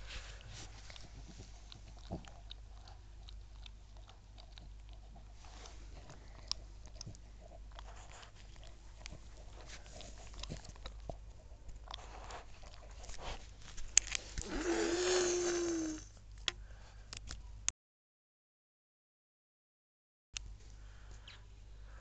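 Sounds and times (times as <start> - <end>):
dog chewing: 0.0 - 14.5.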